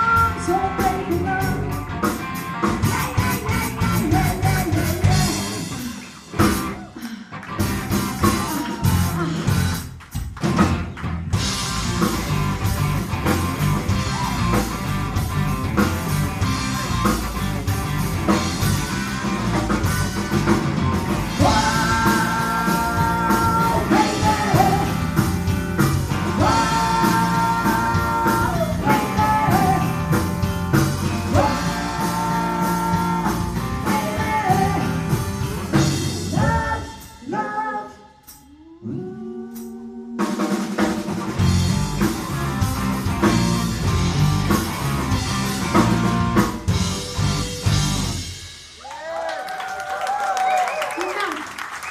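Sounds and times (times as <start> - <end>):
woman singing: 0.0 - 1.8, 2.8 - 5.4, 21.4 - 25.1, 26.4 - 30.1, 31.3 - 35.0, 36.3 - 40.4
rock band playing: 0.0 - 37.3, 40.2 - 51.9.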